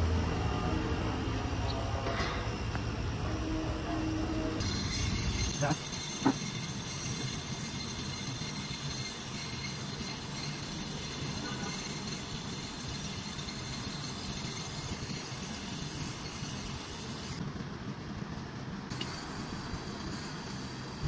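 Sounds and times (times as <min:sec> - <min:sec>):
gas torch hissing: 0:04.6 - 0:17.4, 0:18.9 - 0:21.0.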